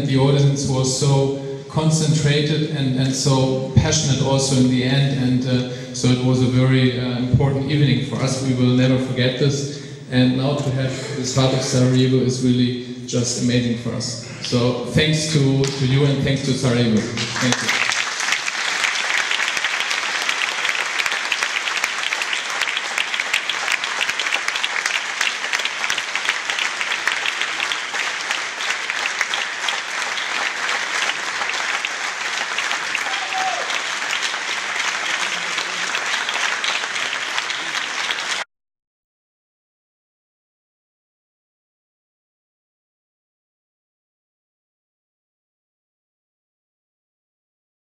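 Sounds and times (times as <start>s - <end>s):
audience applauding: 17.0s - 38.5s.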